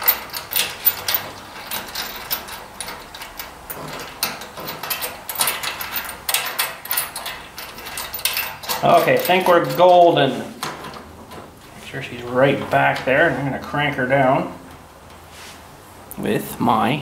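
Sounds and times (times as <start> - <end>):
metal parts clicking and rattling: 0.0 - 11.5.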